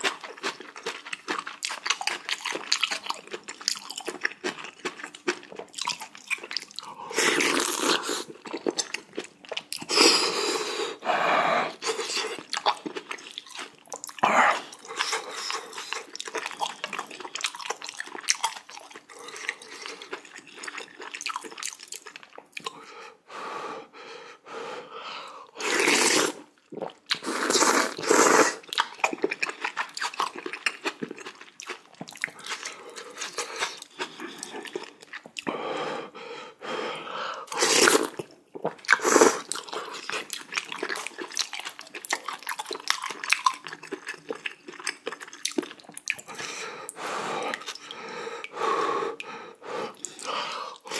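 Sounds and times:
chewing and crunching: 0.0s - 10.0s, 11.8s - 22.8s, 26.3s - 35.5s, 37.5s - 49.3s
noodle slurps: 5.8s - 8.9s, 25.6s - 31.2s, 37.4s - 50.9s.

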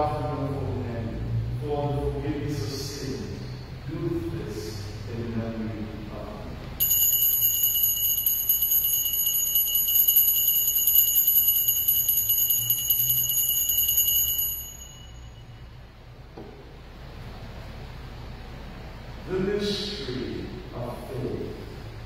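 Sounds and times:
altar bells jingling: 6.8s - 15.7s.

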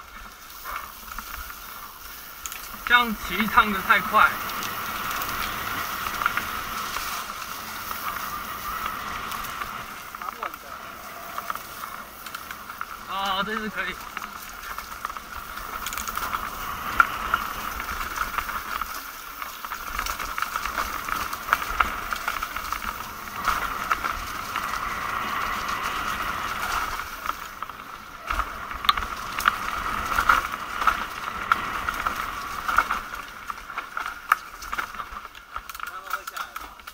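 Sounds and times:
bike freewheel hub buzzing: 0.0s - 36.8s
bike clicks and rattles: 0.0s - 36.9s.

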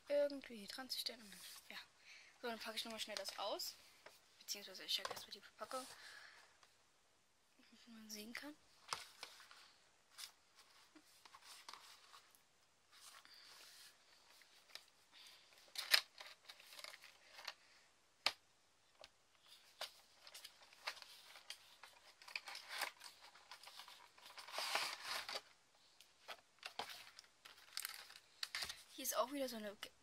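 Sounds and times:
packaging rustling: 8.8s - 17.6s, 19.4s - 25.6s, 26.2s - 28.9s.

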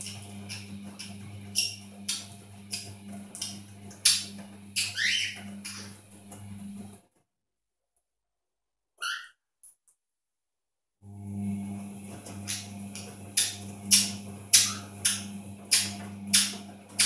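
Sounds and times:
parrot squawking and chirping: 1.5s - 2.8s, 3.4s - 6.0s, 9.0s - 9.4s, 13.4s - 16.5s.

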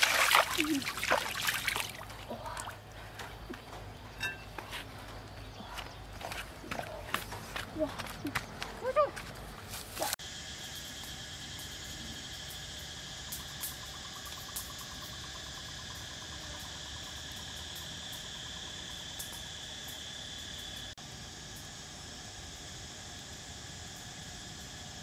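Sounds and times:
insect pulsing trill: 0.0s - 2.0s, 10.2s - 25.0s
insects chirring high tone: 0.0s - 2.1s, 10.0s - 25.0s.

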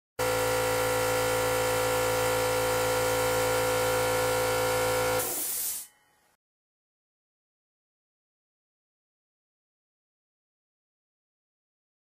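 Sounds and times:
air compressor humming: 0.2s - 5.9s
air hiss: 5.2s - 5.9s.

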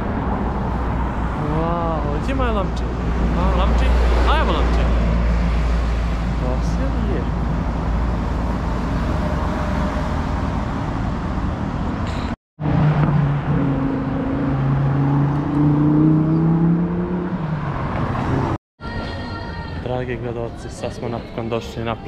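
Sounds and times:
road traffic rumble: 0.0s - 18.6s
vehicle engine speeding up: 12.6s - 18.6s.

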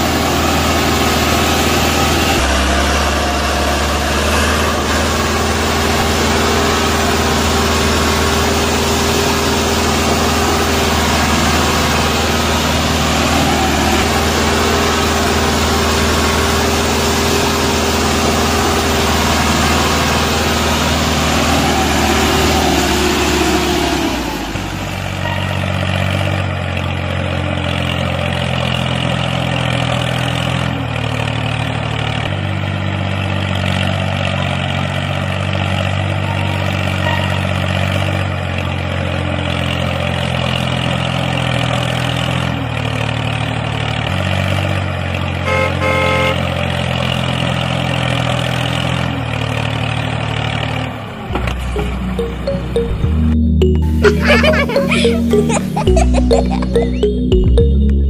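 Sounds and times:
tractor engine running: 0.0s - 58.0s
short high beeps: 51.7s - 58.0s.

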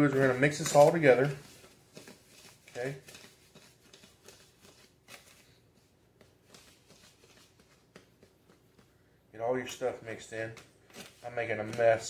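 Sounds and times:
hand rustling dry mix in bowl: 0.0s - 7.5s.

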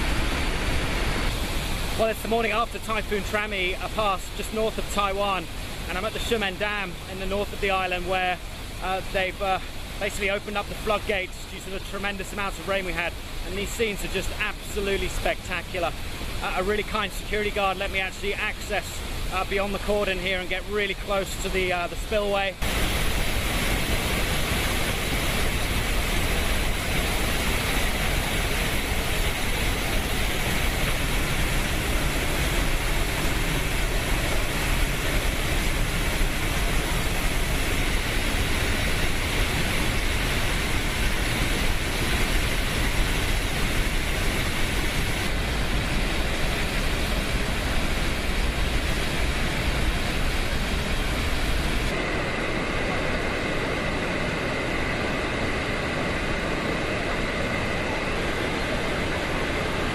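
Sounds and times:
water rushing down spillway: 0.0s - 59.9s.

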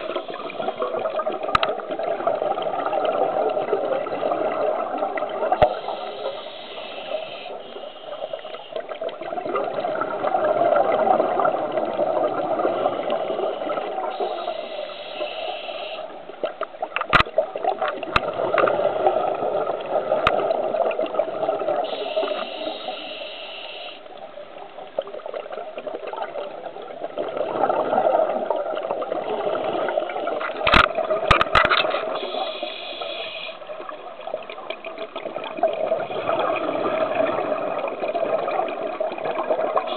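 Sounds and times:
exhaled bubbles burbling: 0.0s - 6.1s, 8.8s - 14.6s, 16.2s - 22.2s, 24.4s - 32.4s, 33.7s - 39.9s
regulator inhale hiss: 5.6s - 8.9s, 13.0s - 16.2s, 21.8s - 24.1s, 32.1s - 33.7s.

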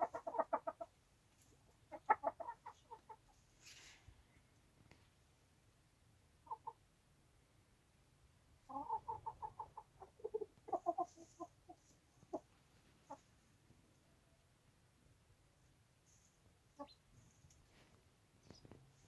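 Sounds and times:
chickens clucking: 0.0s - 3.8s, 6.4s - 6.8s, 8.6s - 13.6s, 16.1s - 17.7s.

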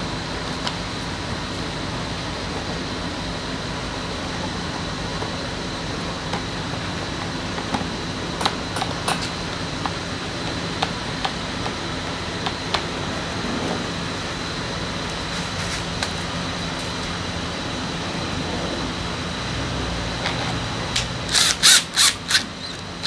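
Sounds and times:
steady background hum: 0.0s - 23.0s
tools and parts clicking: 21.3s - 22.9s.

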